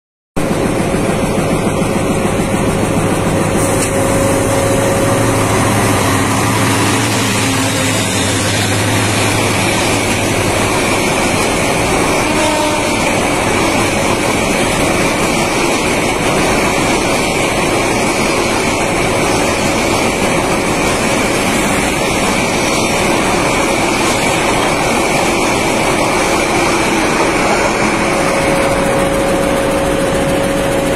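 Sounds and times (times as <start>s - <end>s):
steady hum: 0.4s - 12.3s, 21.8s - 30.9s
train wheels on rails: 0.4s - 30.9s.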